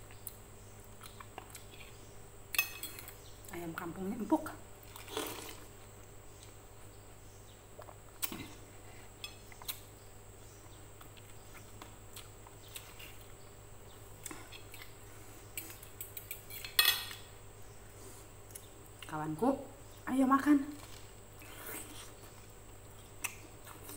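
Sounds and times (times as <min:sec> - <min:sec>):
noodles slurped: 0:04.9 - 0:05.7.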